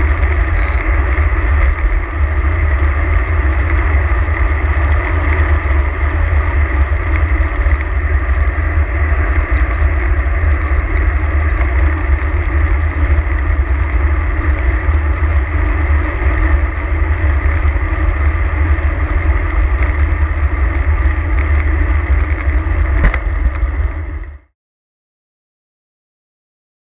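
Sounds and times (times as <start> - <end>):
bike tyres rumbling on tarmac: 0.0 - 24.5
sharp knock: 23.0 - 23.3.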